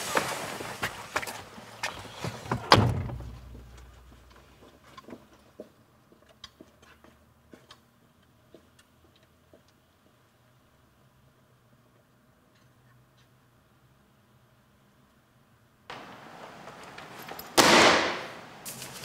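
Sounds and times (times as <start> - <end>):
faint taps and ticks: 5.0 - 10.1.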